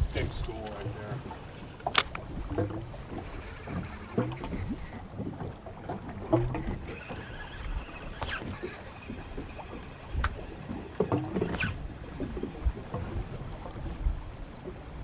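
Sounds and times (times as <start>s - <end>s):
water lapping at boat hull: 0.0s - 15.0s
sharp click: 1.8s - 2.2s.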